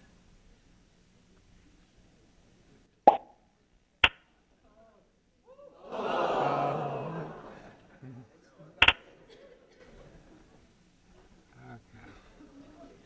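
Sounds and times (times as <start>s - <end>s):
audience voices reacting: 5.5s - 9.3s
sharp clicks: 8.8s - 9.0s.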